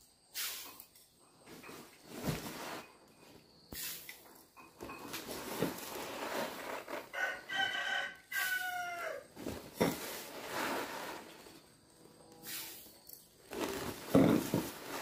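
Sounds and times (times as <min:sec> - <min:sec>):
rice pouring and rustling: 0:01.5 - 0:03.0, 0:04.9 - 0:07.4, 0:09.3 - 0:11.7, 0:13.4 - 0:15.0
rooster crowing: 0:07.1 - 0:09.3.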